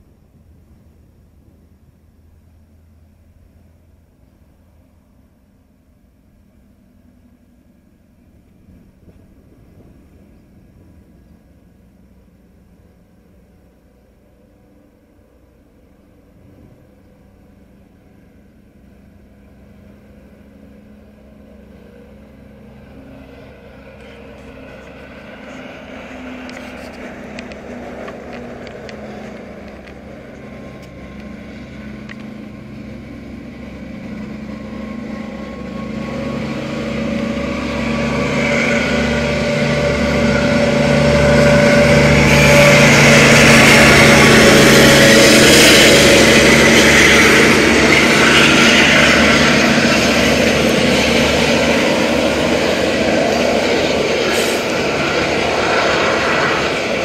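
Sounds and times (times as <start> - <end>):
diesel locomotive engine drone: 0.0 - 57.0
train wheels clattering on rails: 22.7 - 57.0.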